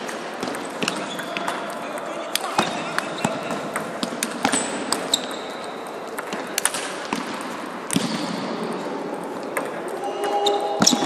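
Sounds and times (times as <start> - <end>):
table tennis ball bouncing on floor: 0.4 - 5.4, 6.1 - 8.2
shoe squeak: 4.5 - 5.7.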